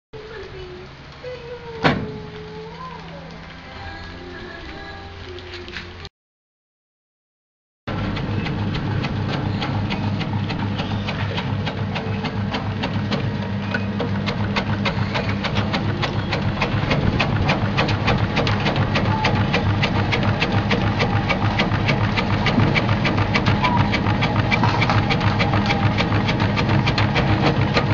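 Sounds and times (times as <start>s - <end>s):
rotating slicer ticking: 7.9s - 27.9s
slicing machine motor hum: 7.9s - 27.9s.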